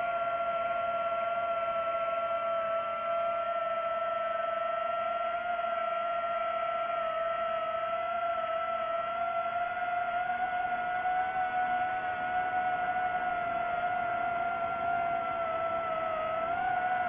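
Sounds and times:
drone propellers whining: 11.6s - 17.0s.

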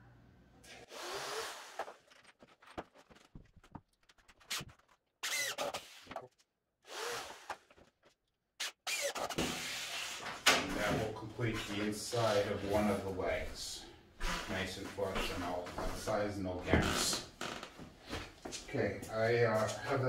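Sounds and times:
cordless drill driving screws: 8.9s - 9.4s.

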